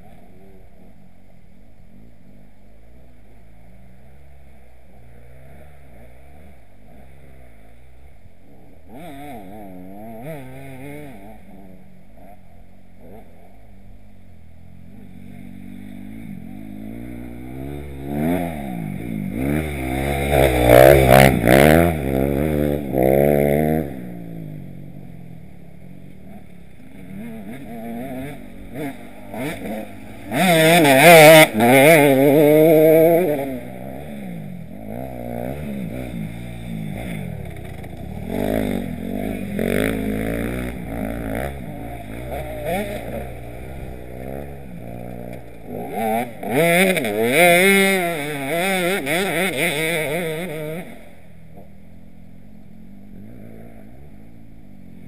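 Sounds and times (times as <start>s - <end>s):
dirt bike engines revving: 0.0s - 55.0s
distant bikes droning: 0.0s - 55.0s
dirt bike passing close: 1.9s - 55.0s.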